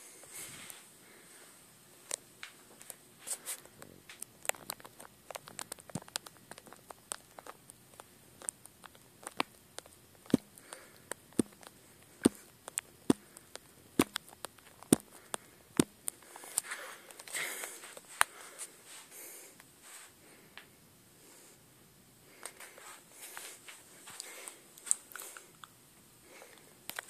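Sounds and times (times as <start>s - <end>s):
sharp clicks and pops: 3.6s - 17.4s.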